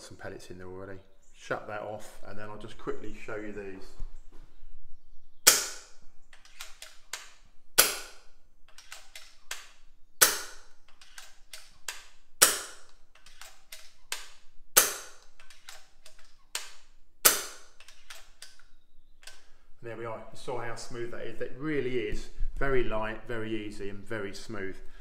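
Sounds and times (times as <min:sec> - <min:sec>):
air rifle shots: 0:05.4 - 0:16.0, 0:16.6 - 0:18.4
rifle lever clicks: 0:05.5 - 0:19.5.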